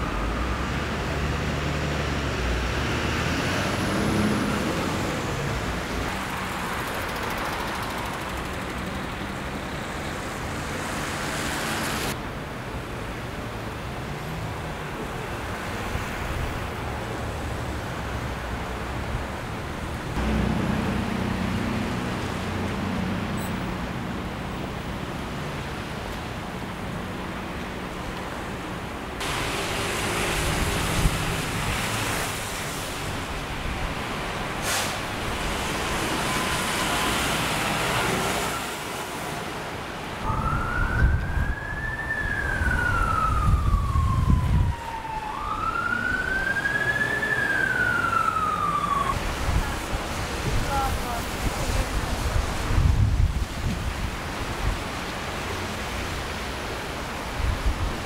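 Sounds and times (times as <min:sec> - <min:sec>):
emergency siren wailing: 0:00.0 - 0:01.5, 0:03.0 - 0:05.6, 0:35.8 - 0:39.0, 0:40.2 - 0:49.2
truck engine passing: 0:00.0 - 0:12.2, 0:19.8 - 0:24.8
tyres hissing on wet road: 0:00.0 - 0:12.3, 0:13.5 - 0:40.3, 0:46.4 - 0:58.0
street traffic noise: 0:00.0 - 0:58.0.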